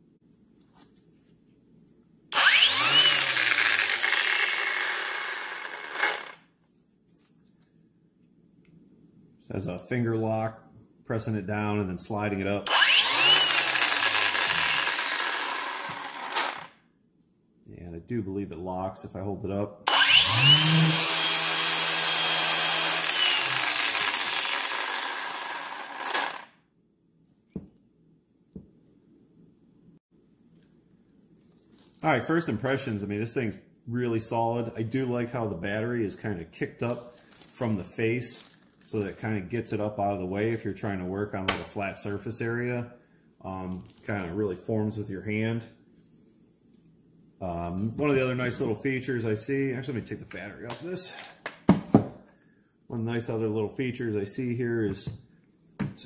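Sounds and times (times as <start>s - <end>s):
angle grinder motor whine: 2.3s - 6.4s, 12.7s - 16.7s, 19.9s - 26.5s.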